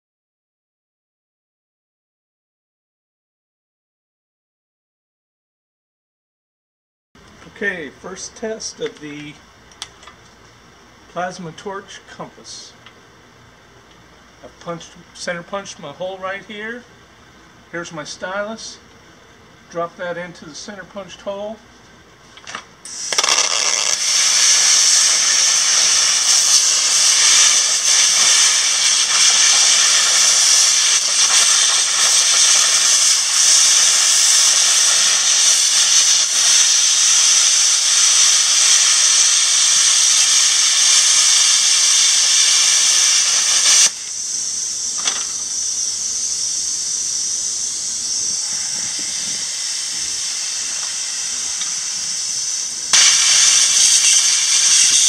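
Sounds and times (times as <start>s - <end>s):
quieter steady hiss: 7.2s - 55.0s
plasma cutter arc hissing: 22.8s - 55.0s.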